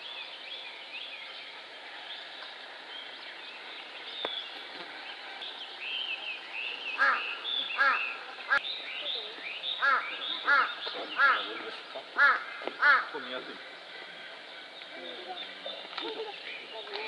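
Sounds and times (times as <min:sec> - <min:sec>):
small birds chirping: 0:00.0 - 0:17.0
steady outdoor hiss: 0:00.0 - 0:17.0
loud bird call: 0:05.9 - 0:08.6.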